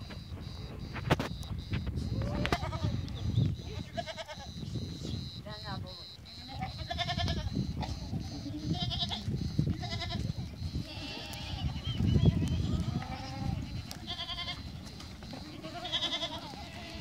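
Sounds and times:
goats bleating: 2.1 - 4.6, 6.3 - 17.0
scuffle of hooves: 6.4 - 17.0.

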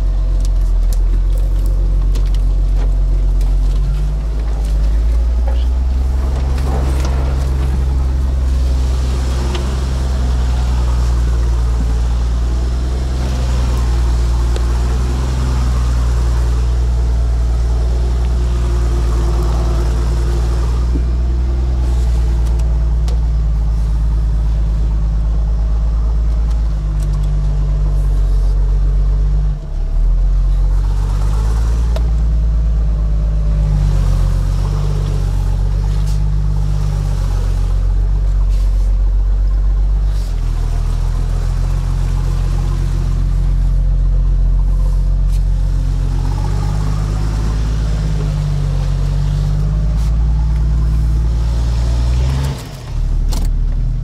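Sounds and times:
truck engine at low revs: 0.0 - 54.0.

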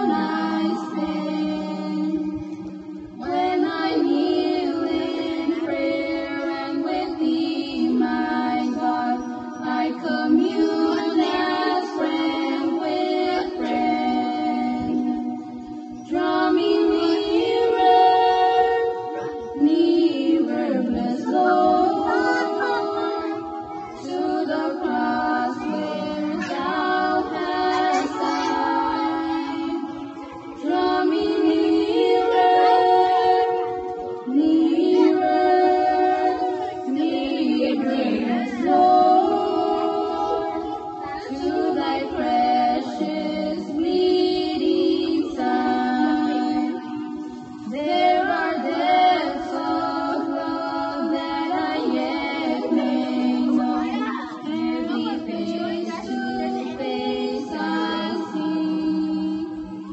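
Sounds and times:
women singing unaccompanied: 0.0 - 59.9.

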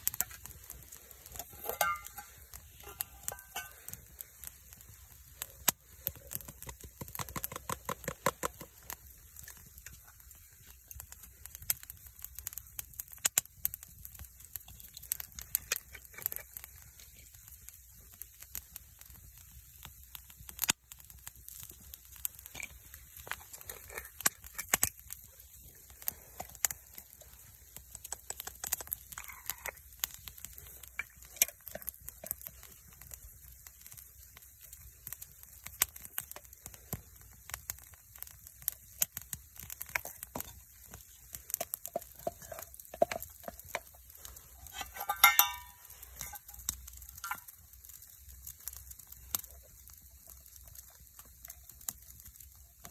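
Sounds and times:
wood fire crackling and popping: 0.0 - 52.9
spoon clinking against metal mug: 1.6 - 2.3, 44.8 - 46.4.

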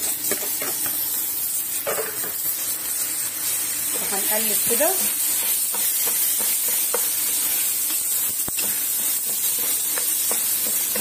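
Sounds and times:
rice sizzling in hot fat: 0.0 - 11.0
wooden spoon scraping a pot: 3.8 - 11.0.

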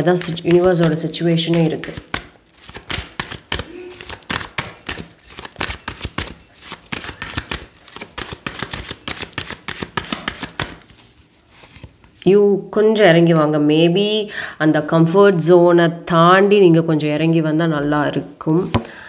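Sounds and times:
cards being shuffled: 0.0 - 12.2.

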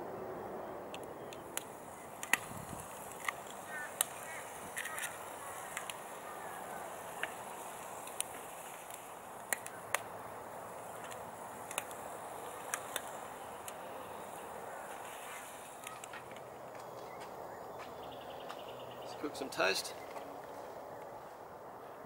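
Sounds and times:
sharp clicks and pops: 0.9 - 17.1
food sizzling in a pan: 11.7 - 16.0.

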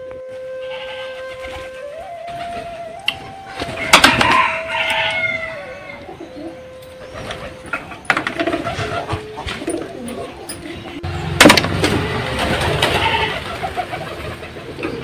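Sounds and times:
hens clucking: 0.7 - 15.0
rooster crowing: 3.7 - 8.0, 11.9 - 13.6.

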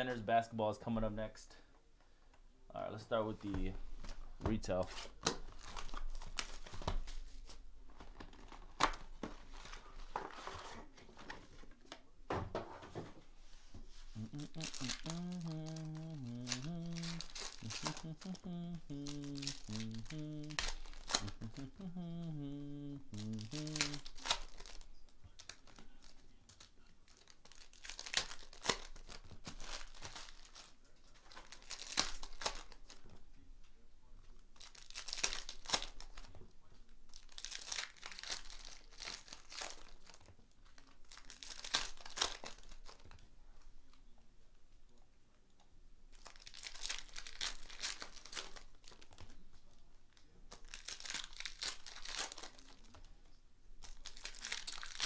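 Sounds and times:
foil packs tearing and crinkling: 5.0 - 7.5, 14.2 - 33.0, 34.6 - 36.3, 37.1 - 43.2, 46.2 - 49.3, 50.5 - 53.0, 53.8 - 55.0.

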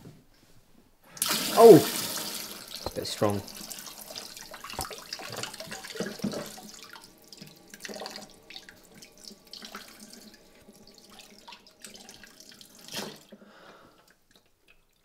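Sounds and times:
tap running into a sink: 2.8 - 3.4, 4.6 - 8.7.

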